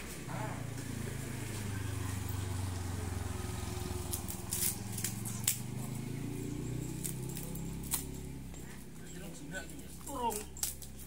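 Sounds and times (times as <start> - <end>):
small engine humming: 0.0 - 11.0
crackles and scrapes on gritty ground: 4.0 - 6.0, 7.0 - 11.0.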